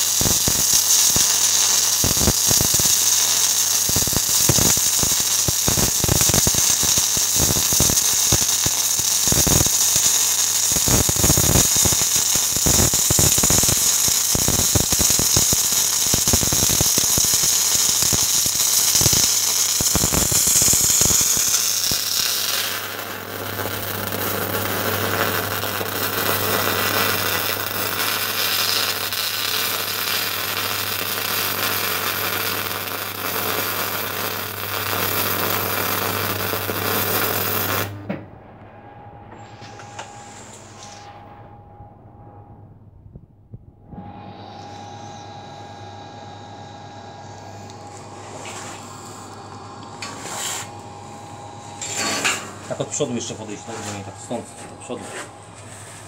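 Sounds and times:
welding arc crackling: 0.0s - 38.0s
steady low hum: 37.4s - 56.0s.

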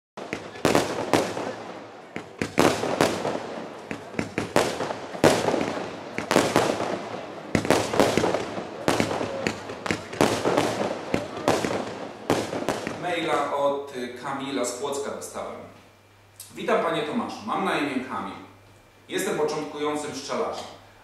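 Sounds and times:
fireworks bangs and crackle: 0.2s - 13.5s.

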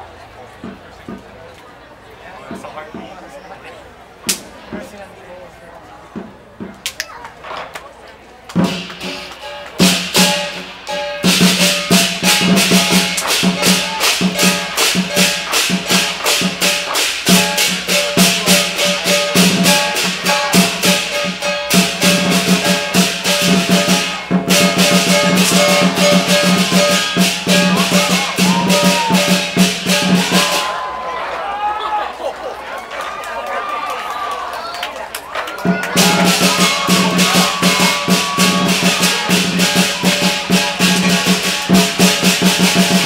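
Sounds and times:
drum with cymbals and gong: 8.6s - 30.8s, 35.7s - 43.0s.

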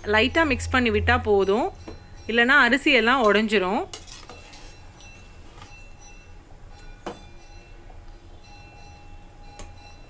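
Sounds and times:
low steady rumble: 0.0s - 3.8s
ladle stirring boiling liquid: 3.2s - 5.6s.

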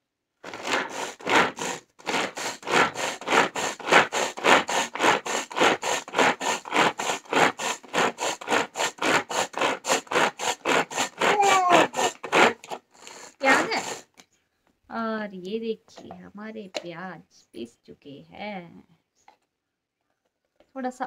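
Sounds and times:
pull cord of vegetable chopper: 0.4s - 14.0s.

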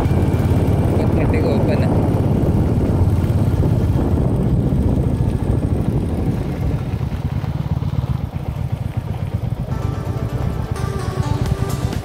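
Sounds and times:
wind noise on microphone: 0.0s - 7.5s
motorcycle engine running: 0.0s - 12.0s.

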